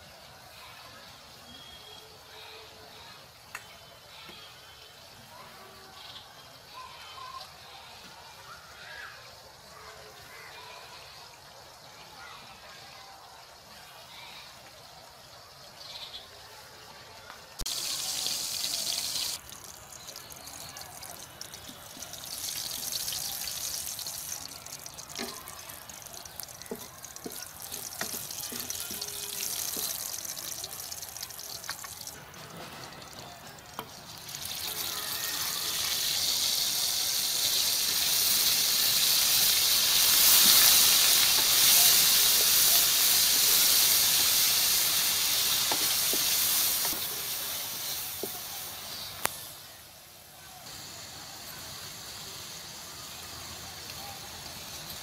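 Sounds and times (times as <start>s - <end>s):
oil sizzling in a pan: 17.5s - 49.9s, 50.6s - 55.0s
wooden spatula stirring: 23.7s - 30.2s.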